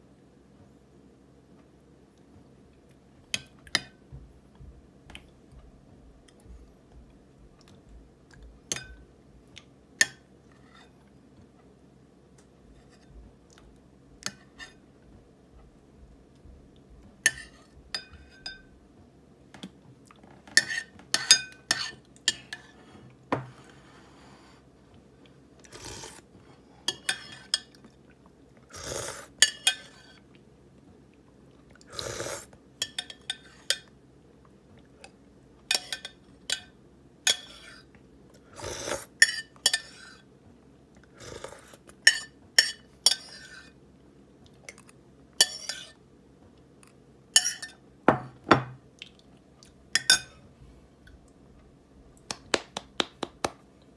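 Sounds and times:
metal spoon clinking on ceramic bowl: 0:08.7 - 0:09.0, 0:17.3 - 0:18.7, 0:47.4 - 0:47.8, 0:50.0 - 0:50.4.

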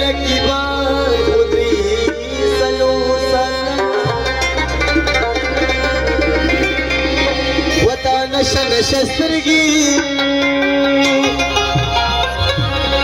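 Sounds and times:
low bass drone: 0:00.0 - 0:09.0
electronic keyboard melody: 0:00.0 - 0:13.0
harmonium melody: 0:00.0 - 0:13.0
tabla: 0:00.0 - 0:13.0.

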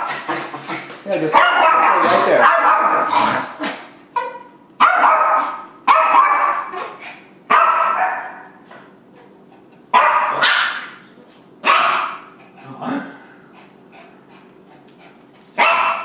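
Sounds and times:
small dog barking: 0:01.3 - 0:03.4, 0:04.2 - 0:06.9, 0:07.5 - 0:08.5, 0:09.9 - 0:11.0, 0:11.6 - 0:12.3, 0:15.6 - 0:16.0.

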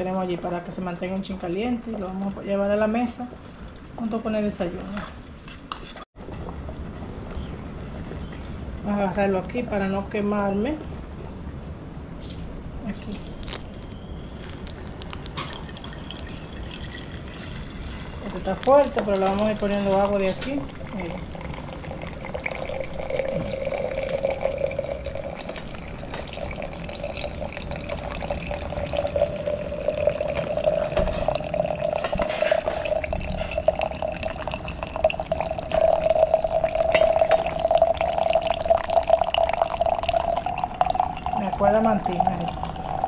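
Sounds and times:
coffee trickling into vessel: 0:13.4 - 0:43.0
water pouring onto coffee: 0:14.4 - 0:43.0.

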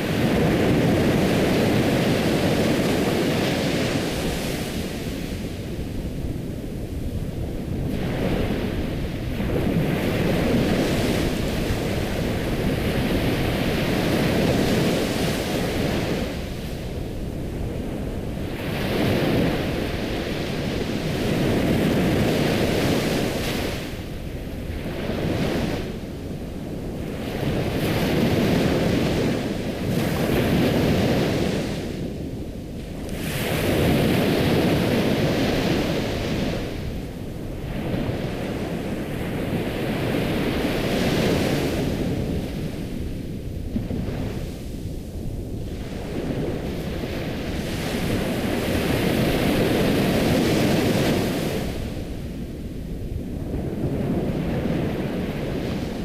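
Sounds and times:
ocean waves on shore: 0:00.0 - 0:56.0.

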